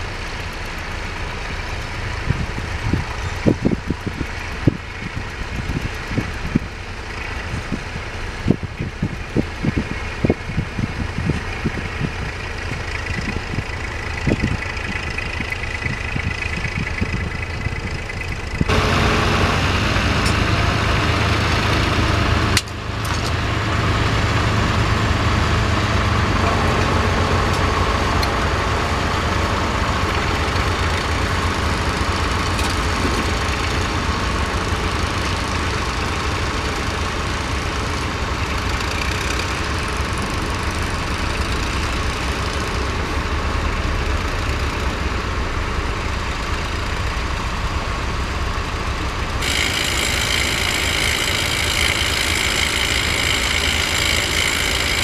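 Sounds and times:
tractor engine ploughing: 0.0 - 55.0.

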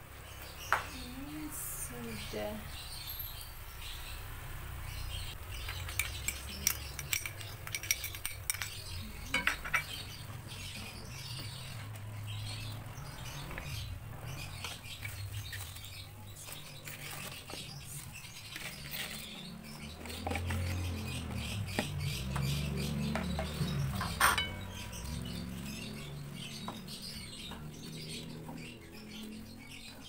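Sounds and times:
utensils clinking against wok: 5.6 - 10.2, 23.1 - 24.8.

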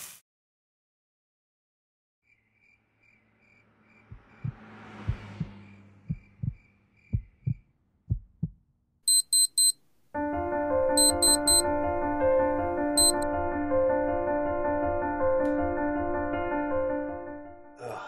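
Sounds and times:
slow heartbeat: 4.1 - 8.6
alarm clock beeps: 9.1 - 9.8, 11.0 - 11.6, 13.0 - 13.2.

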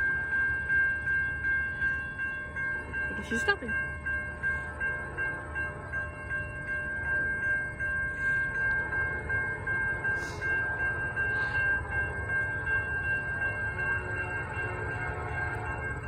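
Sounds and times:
crossing warning bell ringing: 0.0 - 16.0
low train rumble: 0.0 - 16.0.

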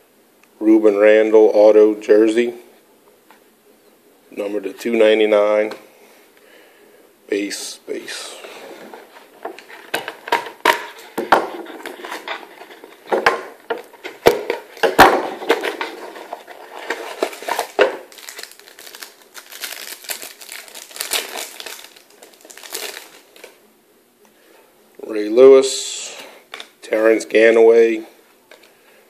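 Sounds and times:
plastic wrap crinkling: 8.7 - 23.6.

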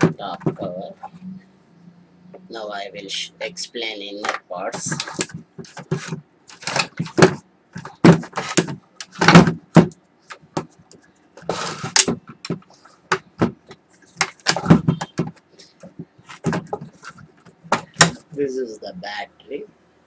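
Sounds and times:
plastic casing knocks and clunks: 0.0 - 0.8, 4.2 - 18.2
plastic case scraping: 4.3 - 10.8, 11.4 - 18.2.

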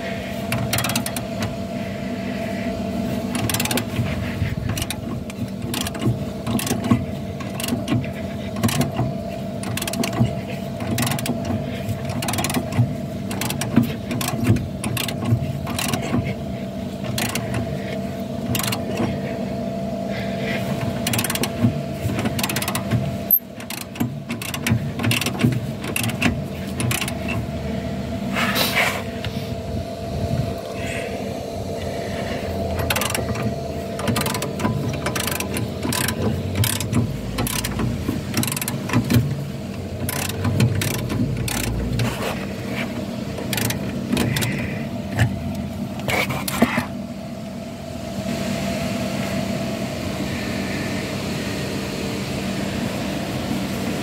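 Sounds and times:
steady background hum: 0.0 - 54.0
ratchet spanner clicking: 0.5 - 1.6, 3.3 - 4.1, 4.7 - 16.3, 17.0 - 17.8, 18.4 - 19.1, 20.8 - 27.5, 32.7 - 46.6.

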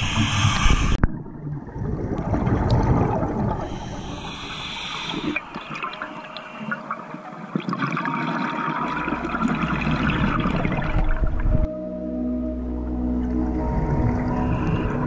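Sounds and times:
bubbles rushing underwater: 1.0 - 4.2, 5.1 - 11.7.

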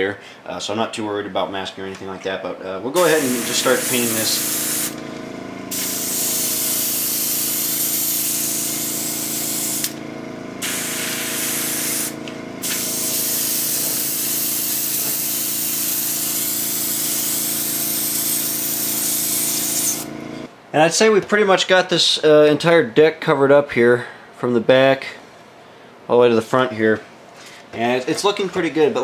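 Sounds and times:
steady hum: 2.8 - 20.6
airbrush spraying hiss: 3.0 - 5.0, 5.6 - 10.0, 10.6 - 20.1.

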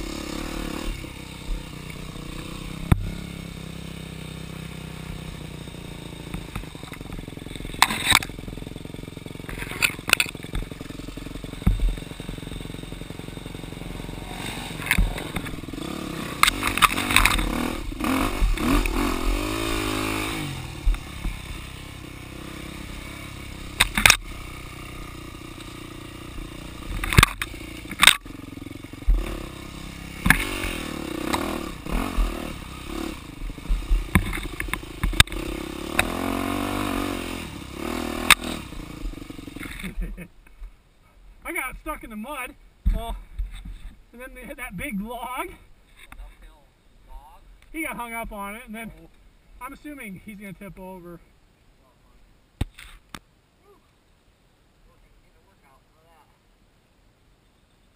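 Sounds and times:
dirt bike engine revving: 0.0 - 40.3
bike knocks and clatter: 11.6 - 12.1, 26.9 - 28.2.

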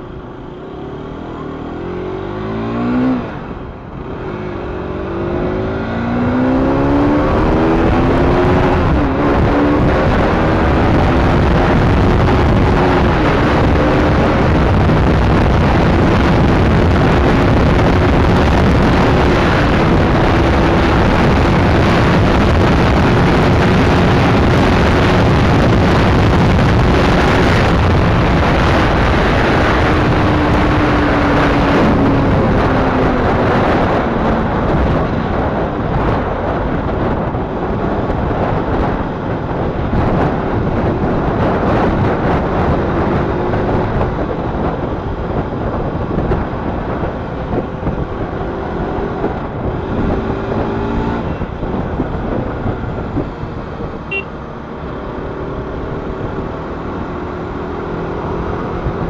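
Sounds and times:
motorcycle engine accelerating: 0.0 - 59.0
wind rush on microphone: 0.0 - 59.0.

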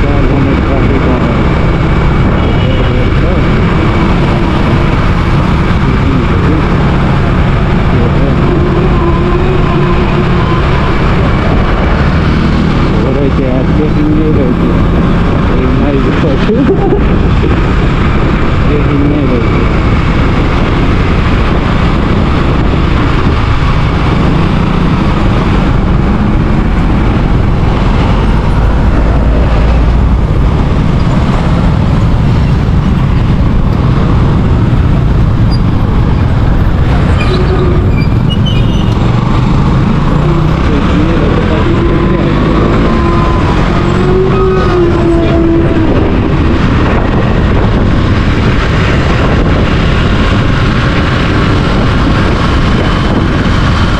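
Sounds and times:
road noise: 0.0 - 53.9
wind rumble: 0.0 - 53.9.

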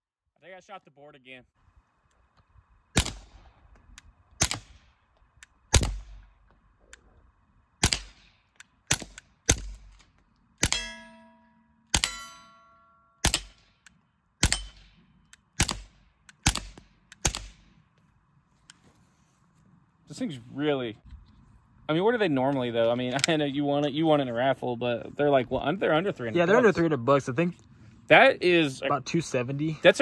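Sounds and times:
suppressed pistol shots: 2.9 - 3.6, 4.3 - 6.3, 7.8 - 11.1, 11.9 - 12.3, 13.2 - 17.8
metallic ringing: 10.6 - 13.3.

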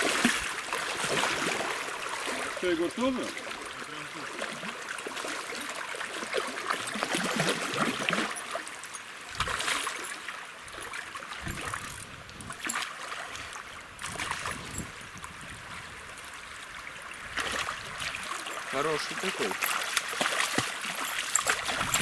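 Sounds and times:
fish splashing in water: 0.0 - 2.6, 4.2 - 8.7, 9.4 - 11.9, 17.2 - 22.0
river current rushing: 0.0 - 22.0.

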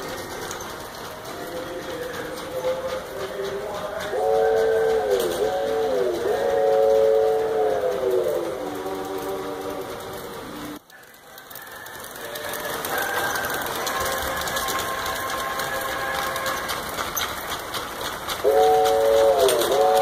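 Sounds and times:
clicking from rails: 0.0 - 20.0
model train running on track: 0.0 - 20.0
train horn blast: 4.1 - 8.0, 18.4 - 20.0.

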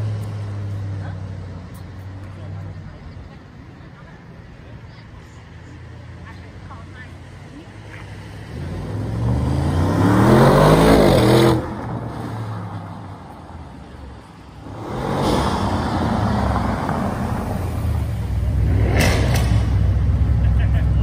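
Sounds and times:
car pulling away: 8.0 - 21.0
car engine accelerating hard: 8.3 - 13.0, 14.6 - 21.0.

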